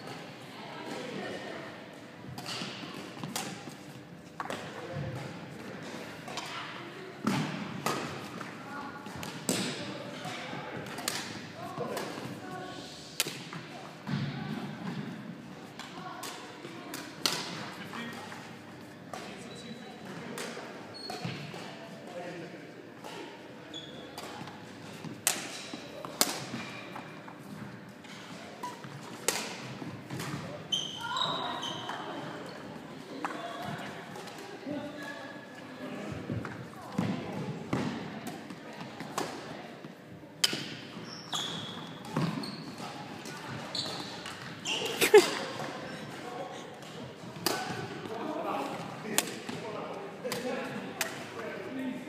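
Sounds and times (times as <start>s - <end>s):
racket hitting shuttlecock: 2.4s - 3.8s, 10.8s - 11.4s, 16.2s - 17.7s, 24.2s - 26.8s, 28.6s - 30.4s, 40.4s - 40.8s, 47.4s - 47.9s.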